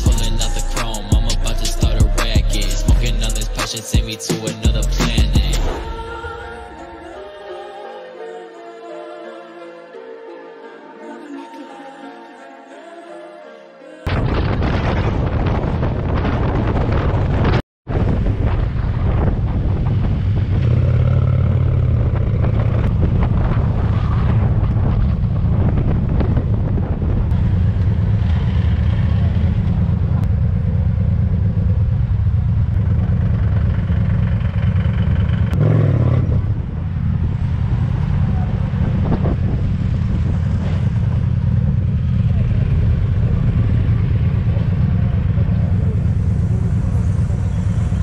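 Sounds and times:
motorcycle engine droning: 0:18.1 - 0:48.0.

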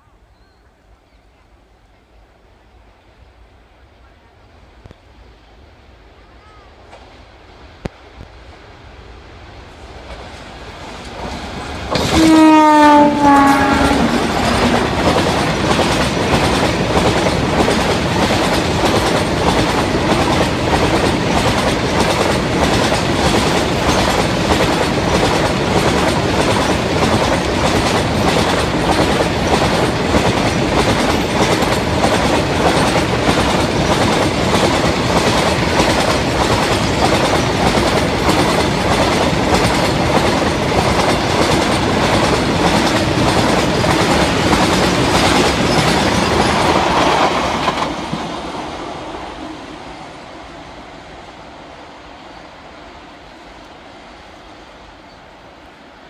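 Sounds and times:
train wheels clickety-clack: 0:10.0 - 0:49.8.

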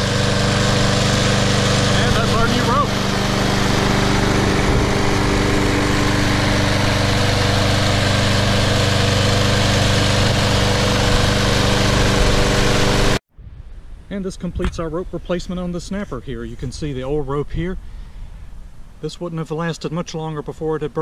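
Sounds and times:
lawn mower engine running: 0:00.0 - 0:13.2.

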